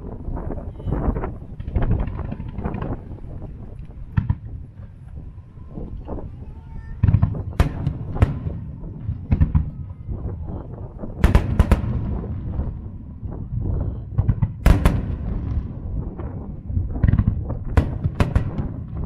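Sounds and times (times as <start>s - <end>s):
low booming rumble: 0.0s - 19.0s.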